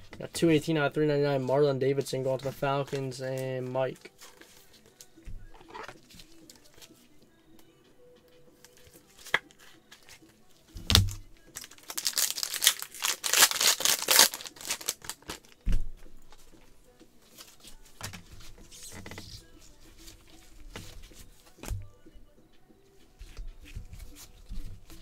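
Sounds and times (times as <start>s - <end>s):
cards rustling: 2.1s - 7.0s, 8.6s - 15.6s, 17.3s - 21.8s, 23.2s - 25.0s
wrapper tearing and crinkling: 10.9s - 15.6s.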